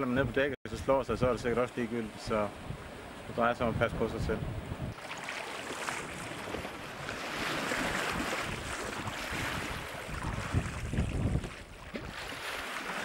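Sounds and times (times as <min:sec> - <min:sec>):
wind buffeting the microphone: 0:02.5 - 0:05.0, 0:06.1 - 0:12.6
sea water splashing along a hull: 0:04.9 - 0:13.0.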